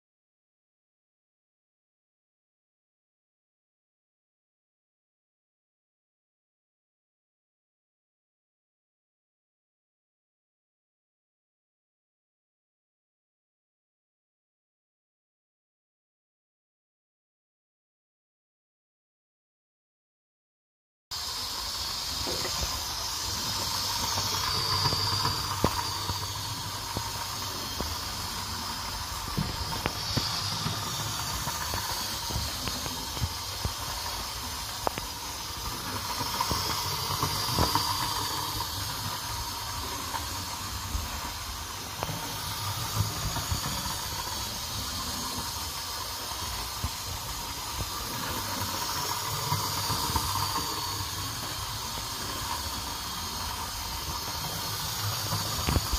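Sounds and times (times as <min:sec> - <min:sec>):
model train motor whirring: 0:21.2 - 0:55.9
wheels clicking over rail joints: 0:21.3 - 0:55.9.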